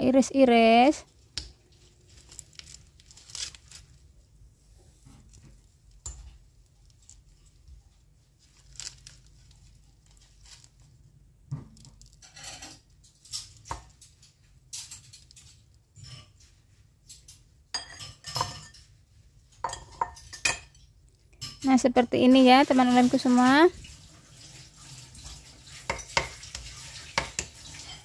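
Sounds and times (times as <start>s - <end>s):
leaf wrapper tearing and rustling: 1.2s - 4.2s, 5.3s - 11.0s.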